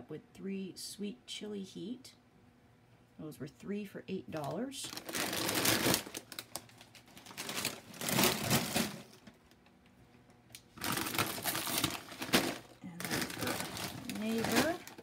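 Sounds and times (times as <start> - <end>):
plastic chip bags crinkling: 4.4 - 9.6, 10.6 - 15.0.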